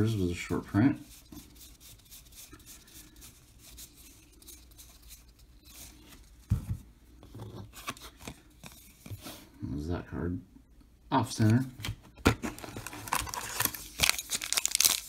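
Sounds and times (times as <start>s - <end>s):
cards flipped through by hand: 7.4s - 9.4s, 11.4s - 15.0s.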